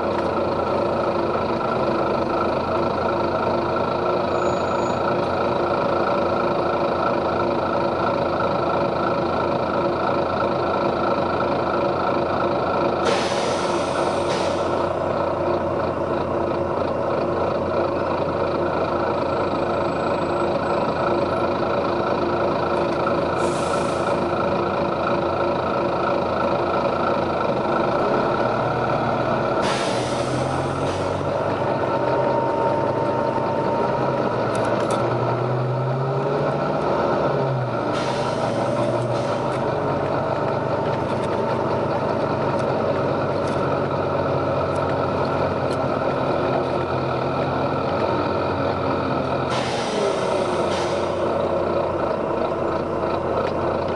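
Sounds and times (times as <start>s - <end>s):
bus diesel engine droning: 0.0s - 53.9s
air brake hisses: 13.0s - 14.9s, 23.4s - 24.2s, 29.6s - 31.3s, 37.8s - 39.6s, 49.5s - 51.3s.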